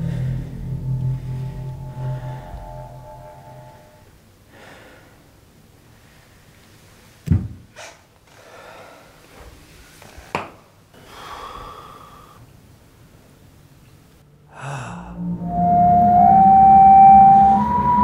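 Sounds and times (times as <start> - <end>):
man breathing hard: 0.0 - 0.7, 4.5 - 5.3, 8.3 - 9.4, 11.0 - 12.5, 14.5 - 15.2.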